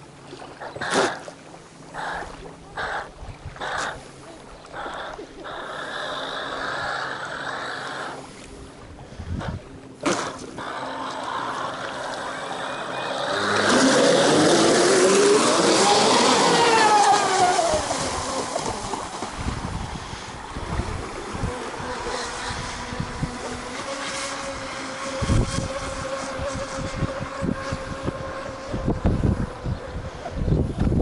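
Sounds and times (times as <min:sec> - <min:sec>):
model boat motor whining: 0:00.5 - 0:31.0
wind buffeting microphone: 0:08.6 - 0:09.8, 0:13.3 - 0:31.0.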